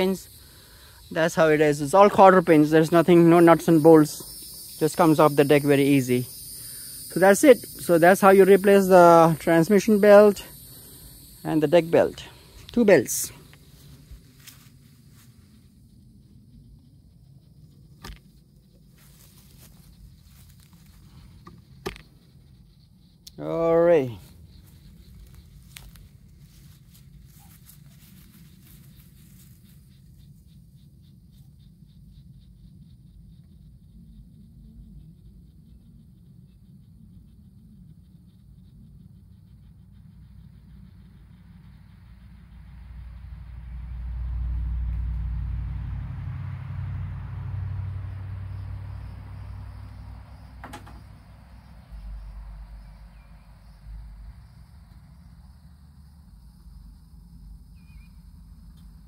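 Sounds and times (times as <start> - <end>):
faint insect noise: 0.0 - 59.0
faint high ticks: 23.1 - 23.4, 58.7 - 59.0
passing vehicle rumble: 40.8 - 59.0.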